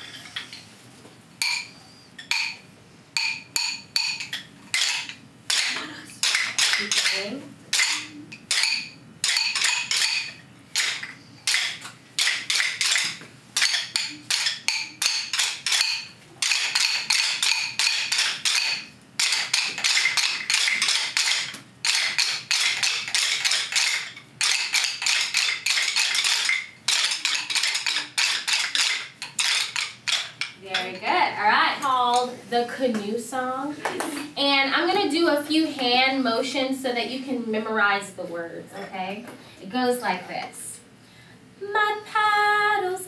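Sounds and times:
children tapping rhythm sticks: 1.4 - 2.6, 3.2 - 31.2.

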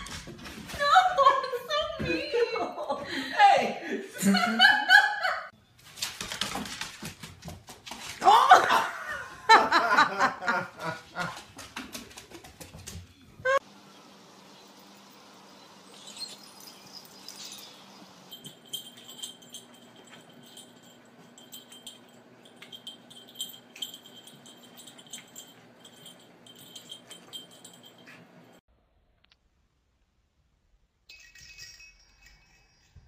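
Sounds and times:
rapid light jingling and clicking: 15.9 - 28.6, 31.1 - 33.0.

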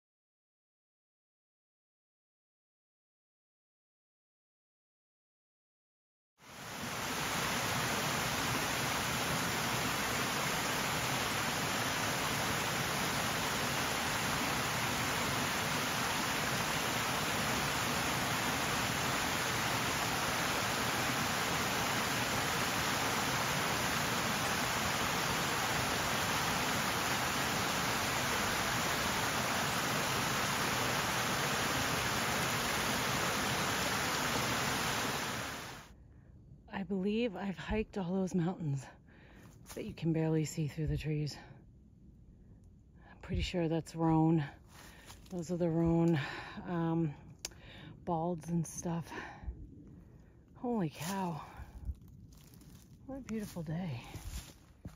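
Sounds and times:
rushing water: 6.4 - 35.9.

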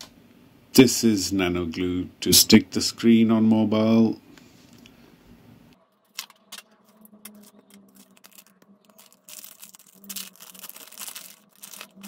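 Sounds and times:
plastic sachet crinkling: 5.9 - 12.0.

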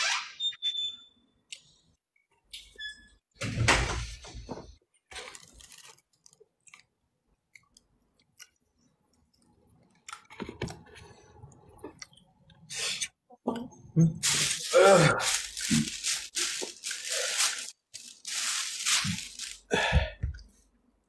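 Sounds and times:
person chewing food: 5.7 - 10.3, 11.6 - 12.7.

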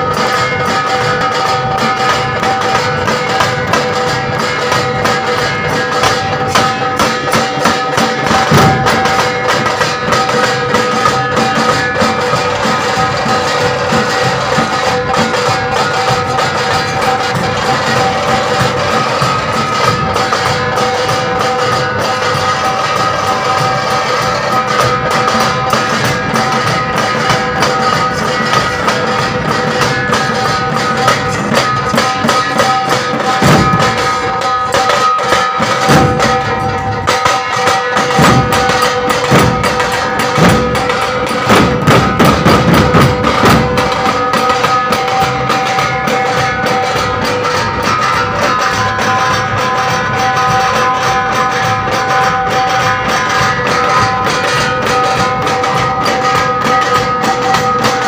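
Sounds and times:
barrel drums beaten rapidly: 0.0 - 58.0
steady high drone: 0.0 - 58.0.

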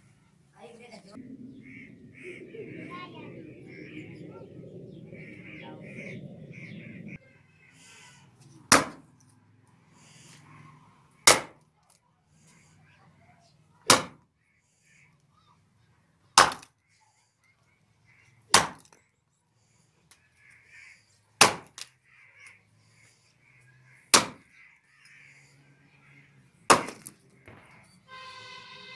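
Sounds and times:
hatchet chopping rotten log: 8.7 - 9.0, 11.3 - 11.6, 13.9 - 14.2, 16.4 - 16.7, 18.5 - 18.8, 21.4 - 21.9, 24.1 - 24.4, 26.7 - 27.1.

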